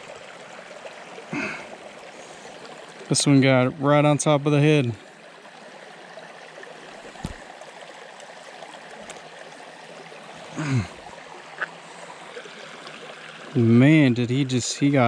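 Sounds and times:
falling vocal grunt: 0:10.6 - 0:11.0.

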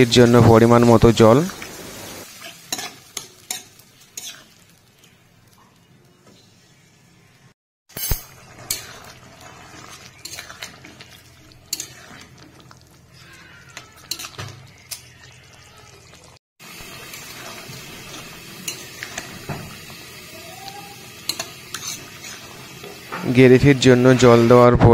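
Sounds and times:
boiling gravy hiss: 0:00.0 - 0:05.6, 0:08.3 - 0:13.7, 0:14.4 - 0:24.7
spatula scraping metal pan: 0:08.3 - 0:13.3, 0:14.0 - 0:15.0, 0:21.3 - 0:23.4.

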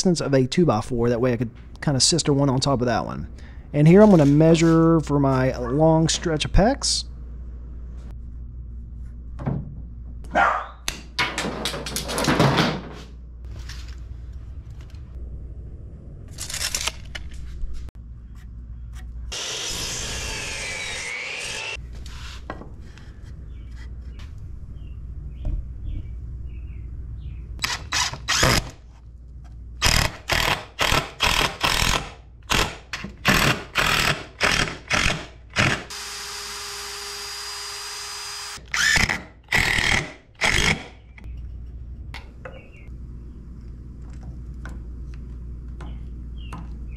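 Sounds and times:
miter saw cutting wood: 0:19.3 - 0:21.8, 0:33.3 - 0:40.9
cordless drill whine: 0:35.0 - 0:40.7
knocks and handling: 0:43.6 - 0:46.9.

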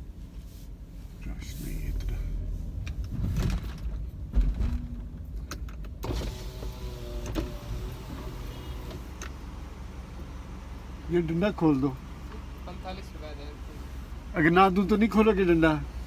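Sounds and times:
car engine rumble: 0:00.0 - 0:16.0
electric window motor whirring: 0:06.0 - 0:09.3.

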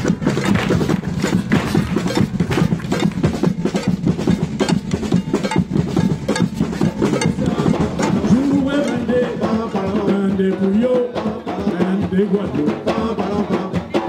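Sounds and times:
rapid hand-clapping: 0:00.0 - 0:04.1
feet stamping: 0:00.0 - 0:09.4.

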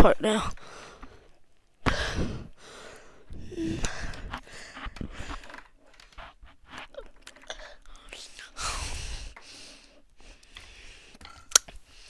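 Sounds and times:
person humming: 0:03.4 - 0:04.3
sharp breath: 0:08.4 - 0:12.0.

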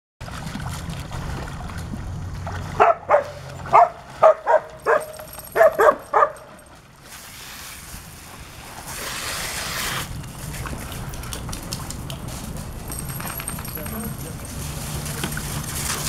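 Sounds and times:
dog barking: 0:02.8 - 0:06.5.

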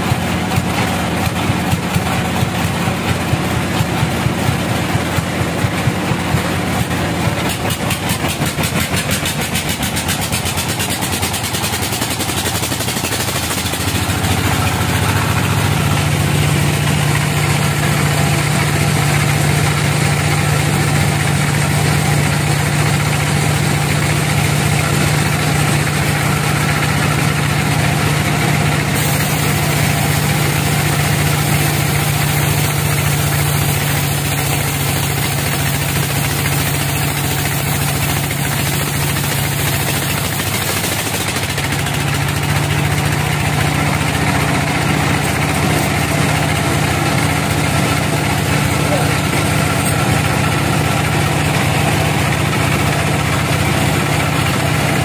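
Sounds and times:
sawmill machinery humming: 0:00.0 - 0:55.0
deep drone: 0:02.0 - 0:40.4.

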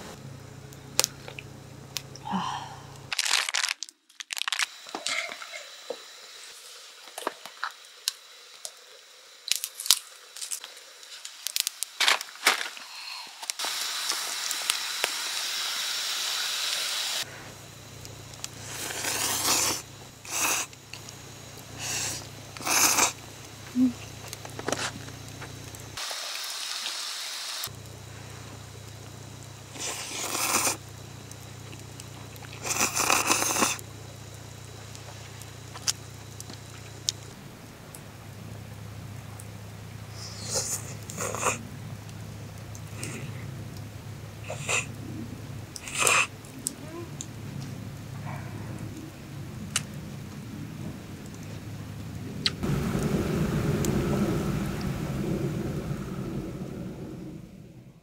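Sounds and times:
pot steaming hiss: 0:02.1 - 0:03.2, 0:04.3 - 0:58.0
packaging crinkling and tearing: 0:03.1 - 0:05.3, 0:09.5 - 0:15.2
noodles being slurped: 0:03.1 - 0:05.7, 0:18.5 - 0:20.8, 0:21.8 - 0:23.2, 0:29.7 - 0:30.8, 0:32.4 - 0:33.8, 0:45.8 - 0:46.3.

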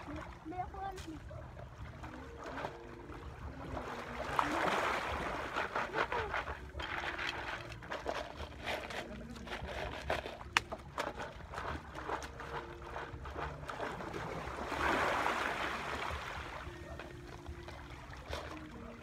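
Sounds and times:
water sloshing around rocks: 0:00.0 - 0:19.0.

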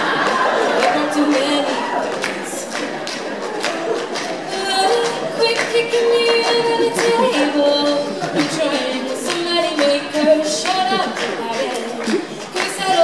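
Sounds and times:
vocal group singing in harmony: 0:10.2 - 0:13.0.

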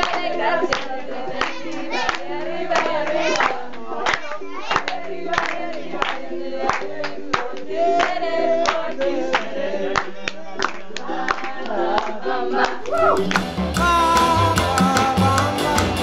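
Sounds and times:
group singing: 0:00.0 - 0:16.0
hands clapping rhythmically: 0:00.0 - 0:16.0
music with drums and bass: 0:13.2 - 0:16.0.

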